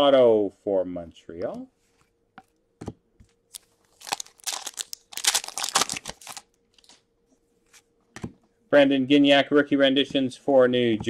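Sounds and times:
foil wrapper crinkling: 0:03.5 - 0:07.0.

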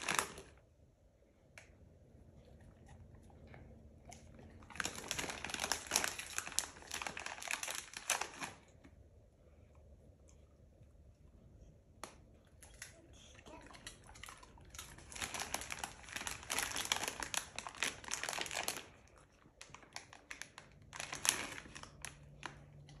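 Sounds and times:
plastic pouch crinkling: 0:00.0 - 0:00.6, 0:04.5 - 0:08.7, 0:14.9 - 0:22.6.

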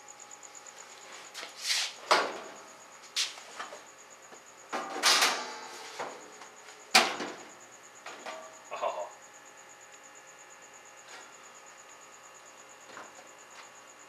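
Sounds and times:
bottles set down on metal shelves: 0:04.7 - 0:06.2, 0:08.0 - 0:08.6.

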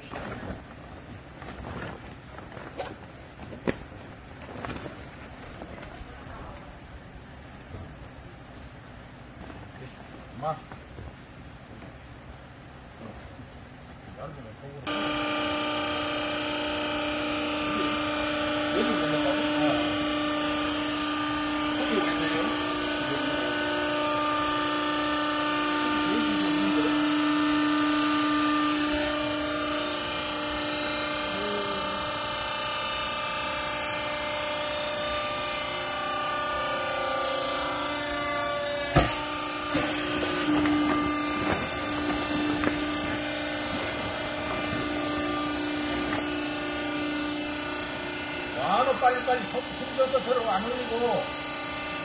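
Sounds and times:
motor and pump humming: 0:14.8 - 0:52.0
sharp knock: 0:38.9 - 0:39.9.

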